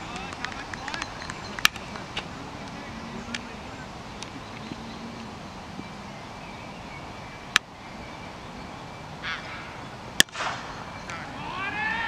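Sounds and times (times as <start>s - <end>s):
open-air background noise: 0.0s - 12.0s
sharp crack: 10.2s - 11.2s.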